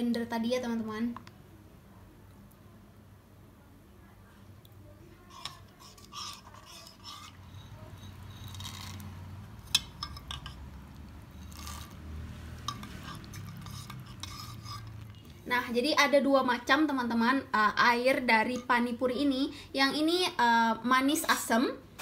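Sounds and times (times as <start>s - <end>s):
wet stirring by hand: 5.2s - 15.4s.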